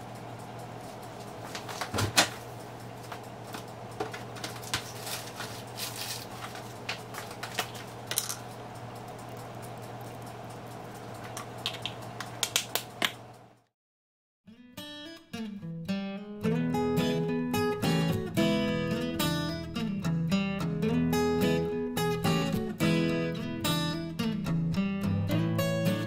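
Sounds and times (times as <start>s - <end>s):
steady low hum: 0.0s - 13.6s.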